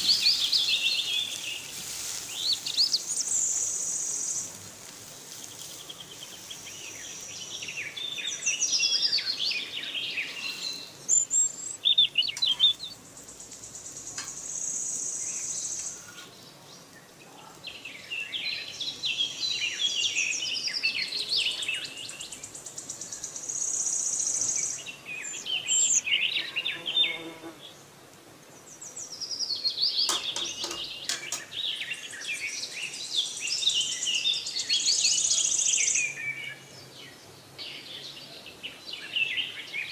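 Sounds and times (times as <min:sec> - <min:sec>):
birds chirping and singing: 0:00.0 - 0:04.6, 0:05.4 - 0:27.9, 0:28.6 - 0:39.9
high steady hiss: 0:00.0 - 0:39.9.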